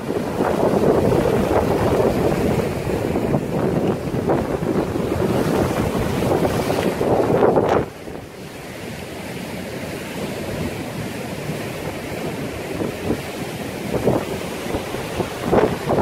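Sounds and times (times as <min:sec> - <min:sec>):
storm surf breaking: 0:00.0 - 0:16.0
wind buffeting microphone: 0:00.0 - 0:16.0.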